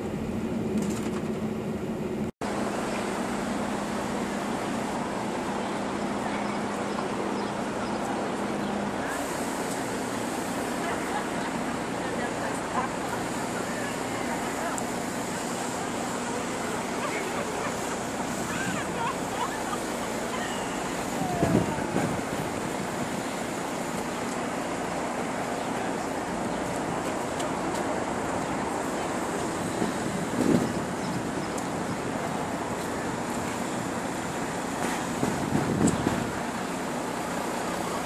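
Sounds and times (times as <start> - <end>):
distant traffic: 0.0 - 38.0
wind hiss: 13.0 - 25.6, 26.2 - 38.0.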